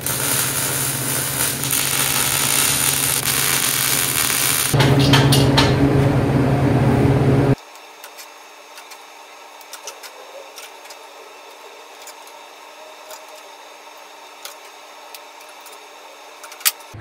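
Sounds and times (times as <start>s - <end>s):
loud noise: 0.0s - 7.6s
steady low hum: 0.0s - 7.6s.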